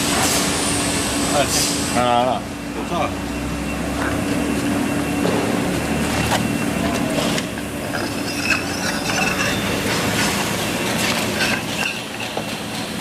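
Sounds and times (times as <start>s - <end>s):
machinery running: 4.3s - 13.0s
metallic clinks of steel parts: 7.8s - 10.4s, 11.0s - 12.5s.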